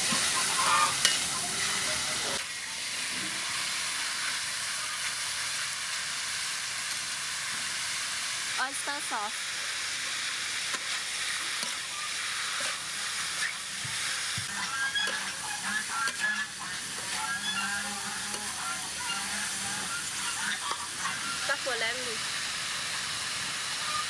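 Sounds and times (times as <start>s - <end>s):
metal spatula scraping wok: 0.0s - 2.0s, 10.7s - 21.8s
meat sizzling in a wok: 0.0s - 24.0s.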